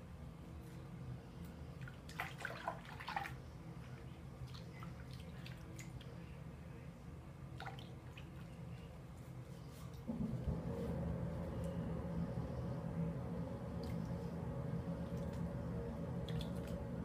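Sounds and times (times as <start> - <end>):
steady low hum: 0.0 - 17.0
water splashing and dripping: 16.2 - 16.8.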